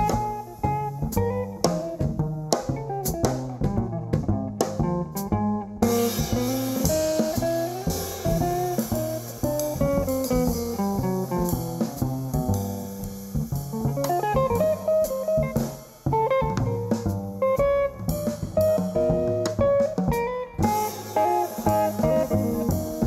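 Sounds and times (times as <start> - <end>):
drums: 0.0 - 23.0
electric guitar melody: 0.0 - 23.0
plucked upright bass: 0.0 - 23.0
cymbals washing: 5.8 - 18.8, 20.6 - 23.0.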